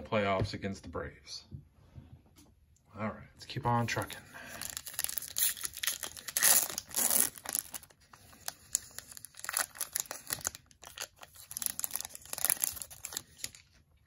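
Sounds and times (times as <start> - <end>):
foil crinkling and rustling: 4.0 - 13.8
foil wrapper tearing: 4.5 - 13.8.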